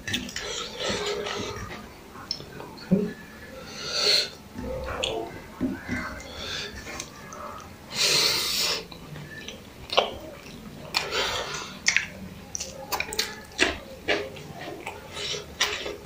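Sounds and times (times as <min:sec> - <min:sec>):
chewing with lip smacks: 0:08.8 - 0:16.0.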